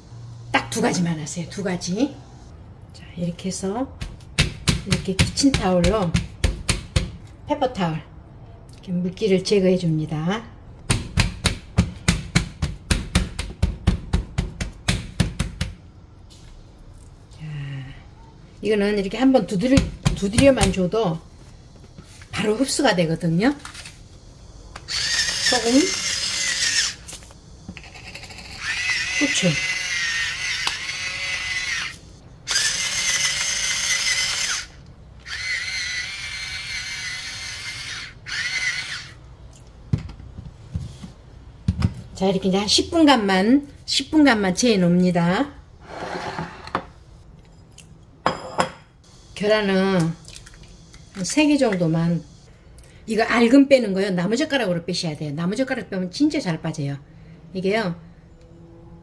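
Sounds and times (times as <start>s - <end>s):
electric pepper grinder whirring: 24.8s - 39.2s.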